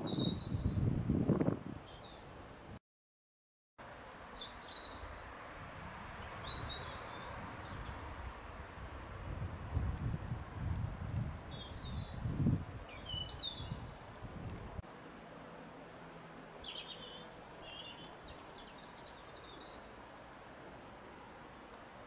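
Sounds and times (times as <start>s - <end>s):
birds singing and chirping: 0.0s - 0.9s, 4.3s - 8.8s, 10.5s - 14.0s, 16.0s - 19.9s
low gusty rumble: 0.0s - 1.8s, 7.3s - 14.8s
faint steady hiss: 13.8s - 22.0s.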